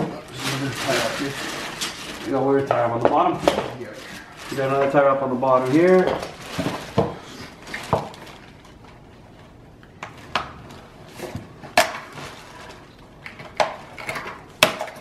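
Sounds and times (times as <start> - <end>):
cardboard handling noise: 0.0 - 8.9.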